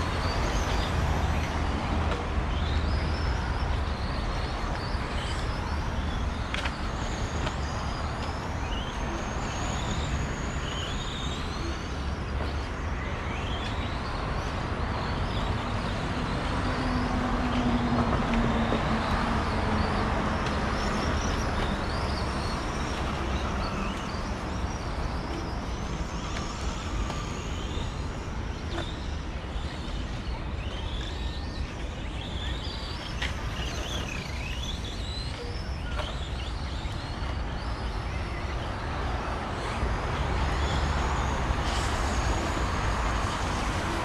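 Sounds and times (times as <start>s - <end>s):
steady background noise: 0.0s - 44.0s
electric rc car motors whining: 20.6s - 44.0s.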